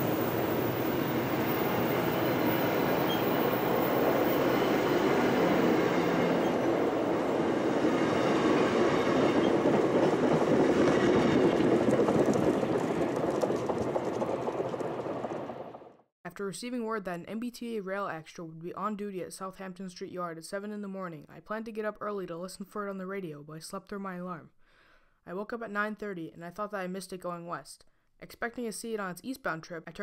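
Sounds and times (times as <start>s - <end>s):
train wheels rumbling on rail: 0.0s - 15.9s.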